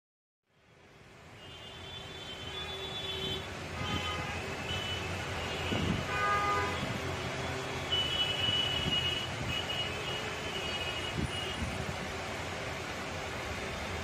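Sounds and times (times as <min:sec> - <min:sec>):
road traffic rumble: 0:00.5 - 0:14.0
vehicle horns tooting: 0:01.4 - 0:11.8.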